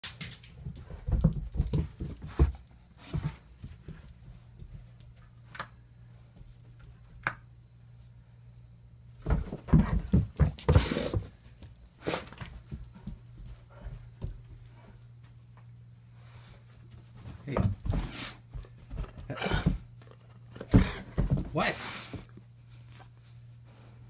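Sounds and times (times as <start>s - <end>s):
steady low hum: 0.0s - 24.0s
dog scuffling on carpet: 16.1s - 19.8s.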